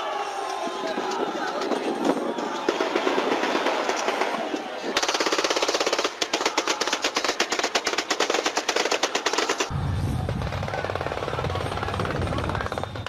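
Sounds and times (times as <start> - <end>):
automatic gunfire: 5.0 - 9.7
low rumble: 9.7 - 12.7.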